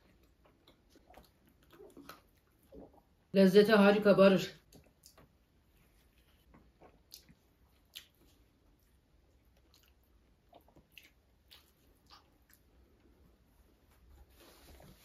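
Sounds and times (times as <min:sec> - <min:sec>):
wet chewing and lip smacks: 0:00.0 - 0:03.2, 0:04.6 - 0:13.1.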